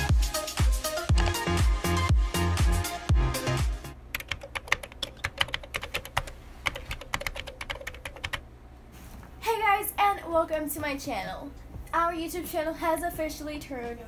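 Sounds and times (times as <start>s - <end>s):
dance music beat: 0.0s - 4.0s
computer keyboard typing: 4.1s - 8.4s.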